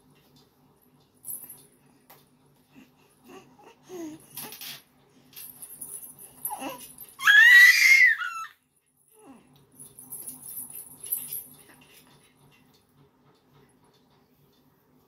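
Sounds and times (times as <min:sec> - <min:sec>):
baby cooing: 0:06.5 - 0:08.6
baby squealing: 0:06.5 - 0:08.6.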